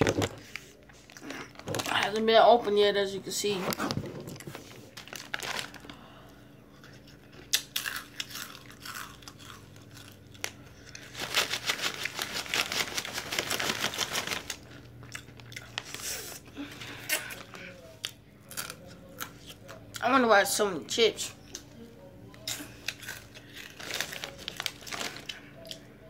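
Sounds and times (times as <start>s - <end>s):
chip bag crinkling and tearing: 0.0s - 2.3s, 4.3s - 6.1s, 7.2s - 17.6s, 22.5s - 25.8s.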